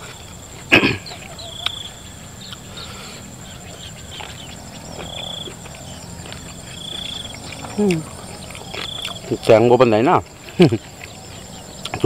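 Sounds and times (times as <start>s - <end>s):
crickets chirping: 0.0s - 12.0s
faint chewing clicks: 2.4s - 2.8s, 3.6s - 12.0s.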